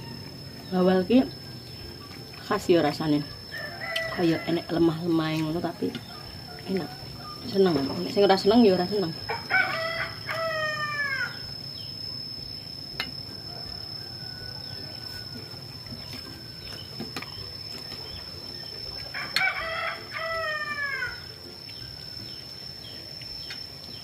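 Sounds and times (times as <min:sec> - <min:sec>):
rooster crowing: 0:03.5 - 0:04.8, 0:09.2 - 0:11.5, 0:13.3 - 0:15.8, 0:19.1 - 0:21.3.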